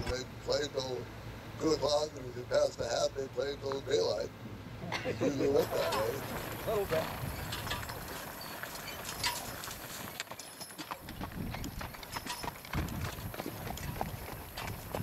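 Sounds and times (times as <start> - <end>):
horse hooves on gravel: 5.6 - 15.0.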